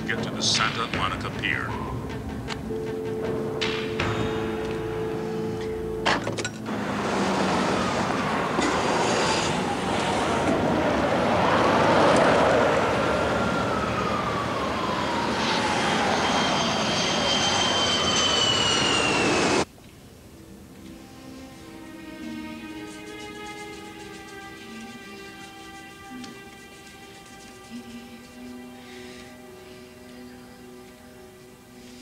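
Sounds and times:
jet aircraft passing over: 0:06.6 - 0:19.7
loud traffic noise: 0:06.6 - 0:19.7.

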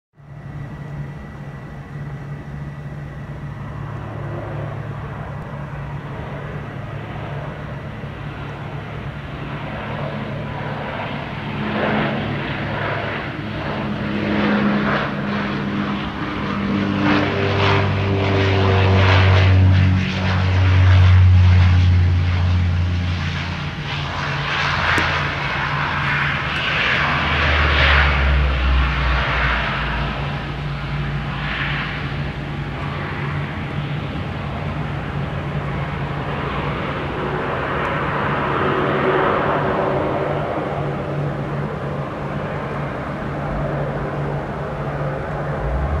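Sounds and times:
propeller drone: 0:00.1 - 0:46.0
deep rumble of plane rolling: 0:00.2 - 0:46.0.

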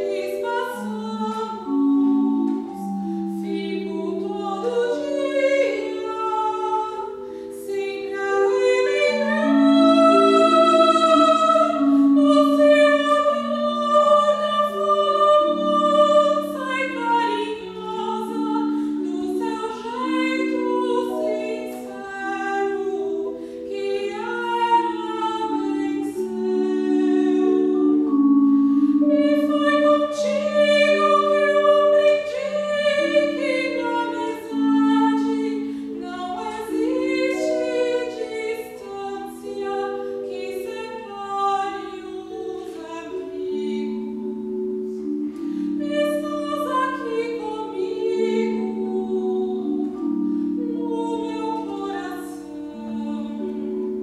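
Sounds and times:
soprano singing with vibrato: 0:00.0 - 0:54.0
vibraphone: 0:41.8 - 0:54.0.

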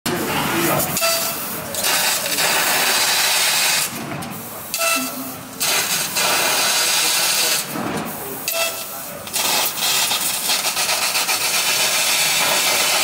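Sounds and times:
laser cutter gas hiss: 0:00.8 - 0:13.0.

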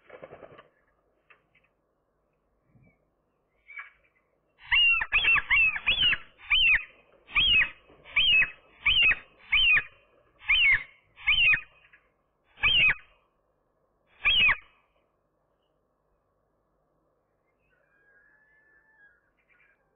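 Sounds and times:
gull crying: 0:17.6 - 0:19.9.

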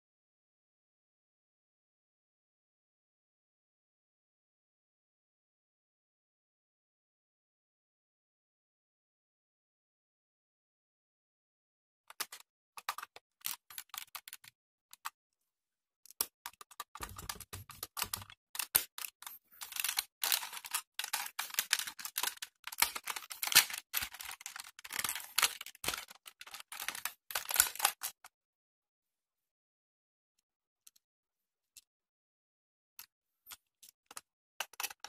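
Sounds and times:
plastic toy parts clicking and rattling: 0:12.1 - 0:15.1, 0:16.1 - 0:28.3, 0:33.5 - 0:35.0.

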